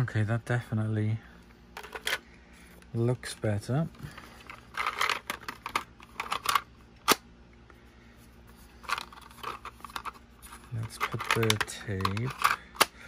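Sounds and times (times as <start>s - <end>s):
plastic casing rustles and scrapes: 1.8s - 2.2s, 3.9s - 6.7s, 8.5s - 12.9s.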